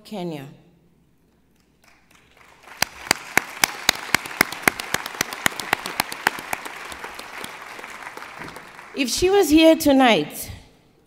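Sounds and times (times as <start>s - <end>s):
audience applauding in a hall: 1.5s - 9.4s
close sharp hand claps: 1.6s - 9.0s.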